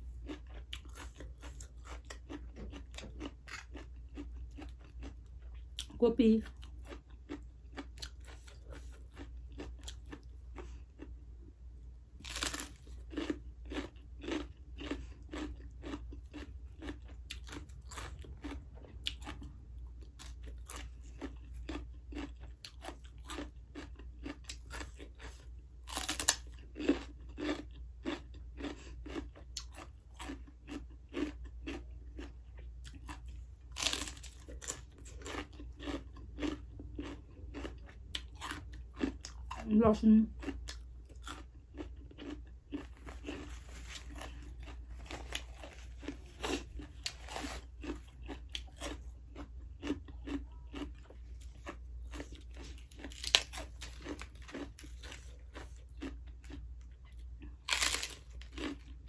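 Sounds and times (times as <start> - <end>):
crunchy vegetable chewing: 0.0 - 59.0
sharp crunchy bites: 12.2 - 32.4, 33.0 - 39.7, 40.4 - 56.6, 57.6 - 59.0.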